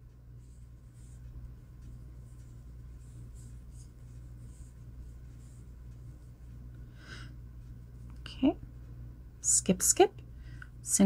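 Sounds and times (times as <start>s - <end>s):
steady low hum: 0.0s - 11.0s
yarn rustling over crochet hook: 0.3s - 6.7s.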